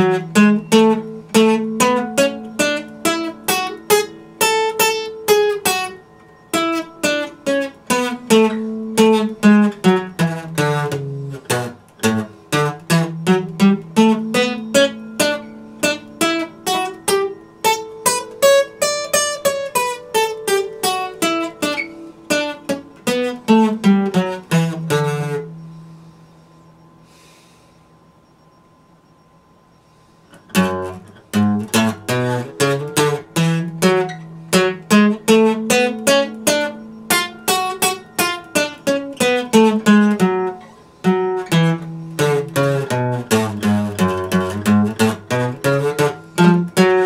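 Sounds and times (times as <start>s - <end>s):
acoustic guitar melody: 0.0s - 47.0s.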